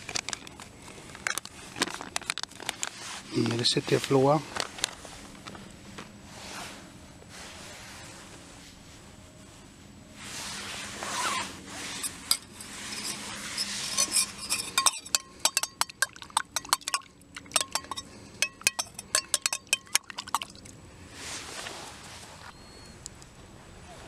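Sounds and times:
spoon scraping in metal cup: 0:11.8 - 0:20.6
spoon clinking against metal cup: 0:12.0 - 0:20.6.

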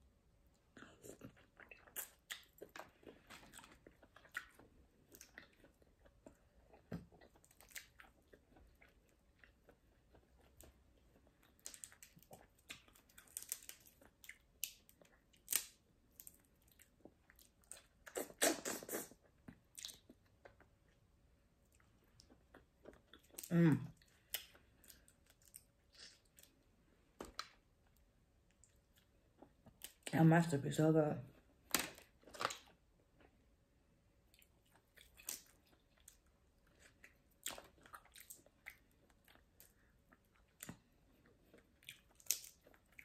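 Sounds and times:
chewing and biting: 0:00.7 - 0:20.7, 0:34.3 - 0:43.0.

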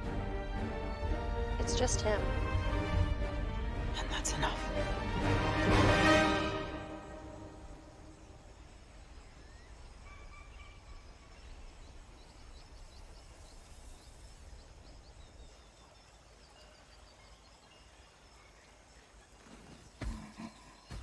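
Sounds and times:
faint bird calls: 0:07.5 - 0:21.0.

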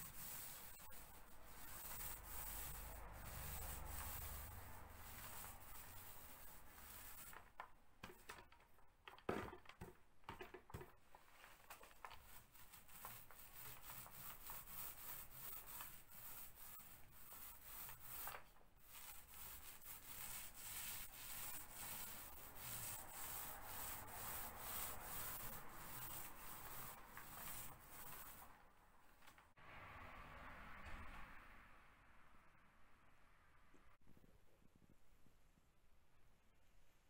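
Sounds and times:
paint roller swishing on wall: 0:00.0 - 0:29.4.

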